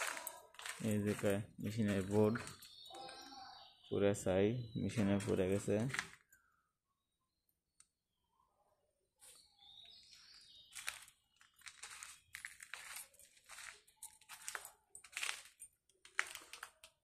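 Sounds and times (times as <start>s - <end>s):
footsteps crunching on debris: 0.0s - 2.9s, 5.1s - 6.2s, 9.3s - 17.0s.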